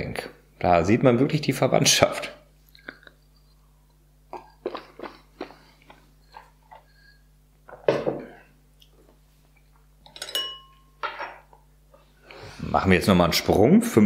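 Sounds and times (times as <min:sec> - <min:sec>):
person gulping water: 0:04.3 - 0:06.9.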